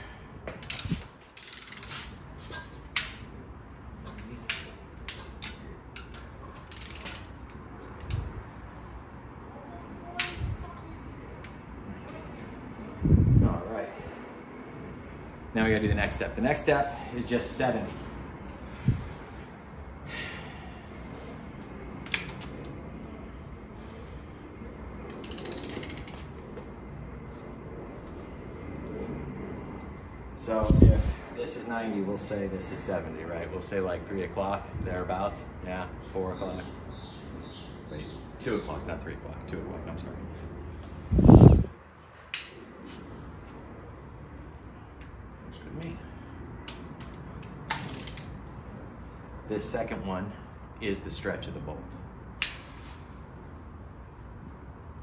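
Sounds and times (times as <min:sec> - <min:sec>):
ratchet clicking: 0:00.6 - 0:02.0, 0:04.5 - 0:08.2, 0:25.2 - 0:26.2.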